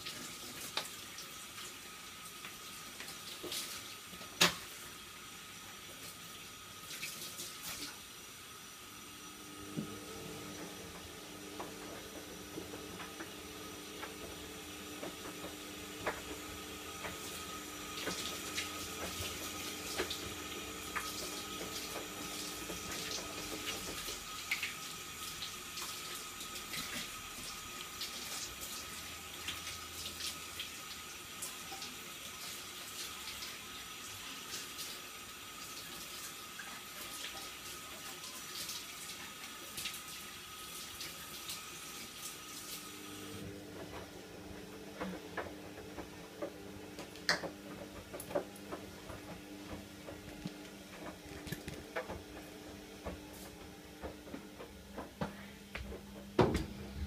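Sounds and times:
tap running into sink: 0:09.7 - 0:24.8, 0:44.9 - 0:56.8.

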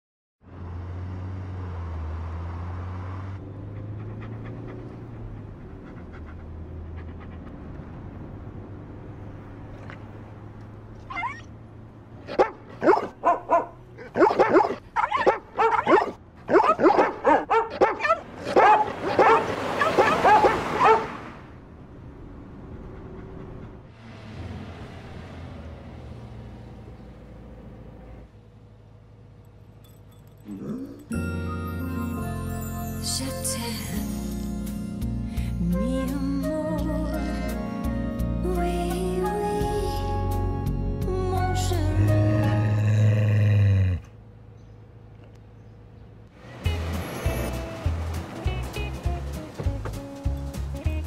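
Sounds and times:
low car rumble: 0:00.4 - 0:31.9, 0:34.7 - 0:51.0
dogs howling and barking: 0:12.3 - 0:21.2.

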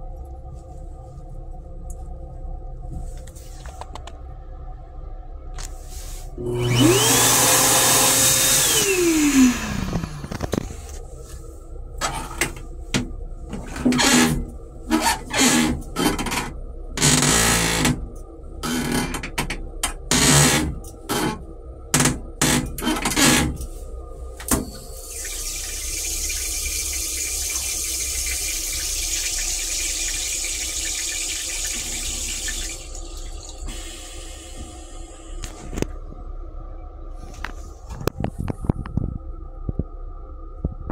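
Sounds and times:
hand dryer blowing and winding down: 0:06.4 - 0:10.5, 0:24.7 - 0:33.0
toilet flushing: 0:06.4 - 0:10.5, 0:24.6 - 0:35.8.

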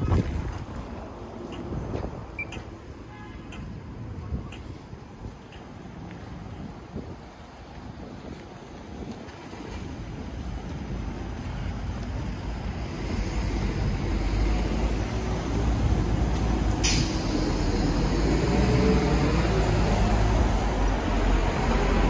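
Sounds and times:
heavy vehicle engine rumble: 0:00.0 - 0:22.0
sharp hiss: 0:16.8 - 0:17.7.

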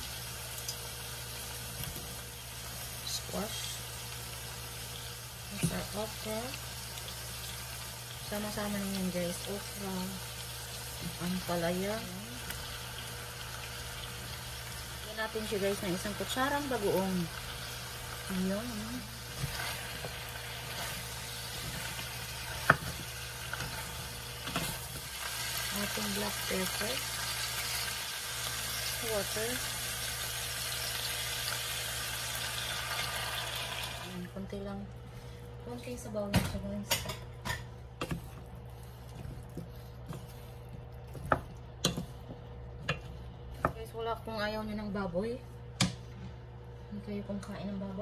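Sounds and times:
vegetables sizzling in skillet: 0:00.0 - 0:34.3
spatula stirring food in skillet: 0:16.2 - 0:28.8, 0:37.0 - 0:44.0
steady low hum: 0:34.0 - 0:48.0.

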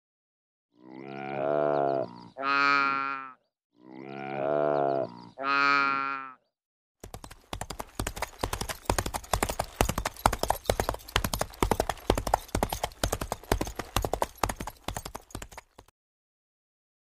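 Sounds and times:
galloping hoofbeats on hard ground: 0:07.0 - 0:15.9.

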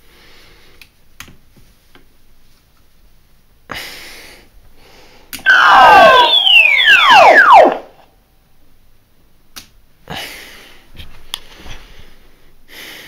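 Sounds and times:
electronic falling whine: 0:05.5 - 0:08.0.

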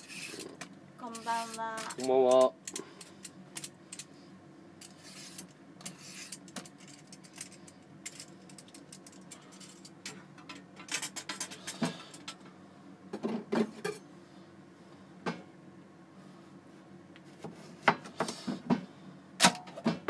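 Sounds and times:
peeler scraping carrot: 0:00.0 - 0:02.1, 0:04.9 - 0:06.4
steady low hum: 0:00.0 - 0:20.0.

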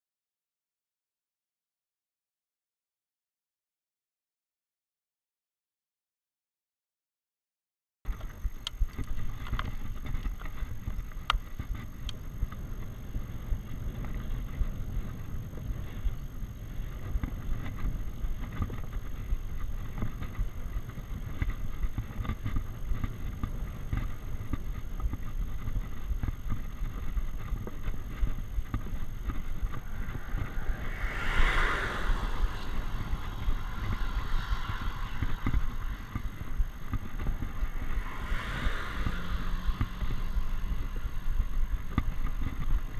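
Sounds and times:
faint high whine: 0:08.1 - 0:42.9
road and wind rumble: 0:08.1 - 0:42.9
rushing sound: 0:29.4 - 0:36.7.

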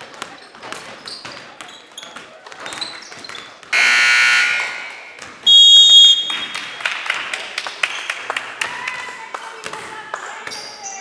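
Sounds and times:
scoreboard buzzer: 0:03.8 - 0:06.1
referee whistle: 0:03.8 - 0:06.5.

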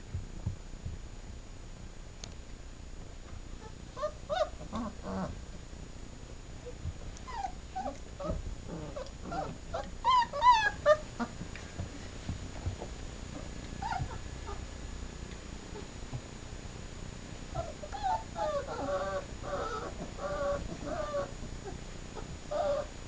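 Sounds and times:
puppies whimpering and squealing: 0:03.6 - 0:05.3, 0:07.2 - 0:11.3, 0:13.8 - 0:14.6, 0:17.5 - 0:22.9.

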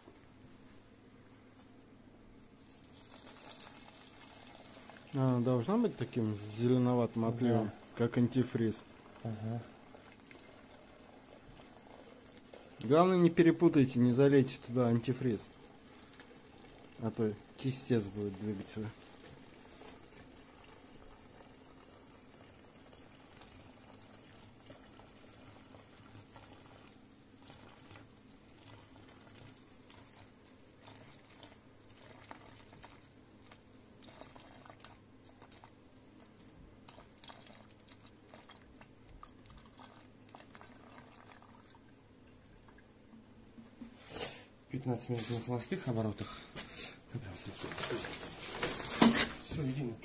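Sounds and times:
fluid trickling into bottle: 0:02.6 - 0:05.2, 0:36.8 - 0:42.8.

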